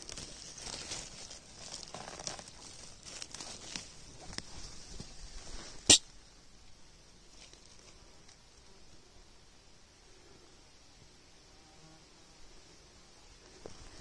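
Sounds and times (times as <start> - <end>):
dry leaves rustling: 0.0 - 6.0, 7.2 - 8.4.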